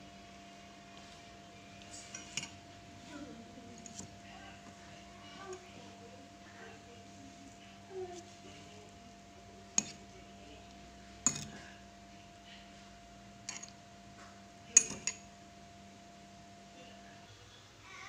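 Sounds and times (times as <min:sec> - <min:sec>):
metal fork clinking glass bowl: 0:09.7 - 0:10.1, 0:11.2 - 0:11.7, 0:13.4 - 0:13.8, 0:14.7 - 0:15.3.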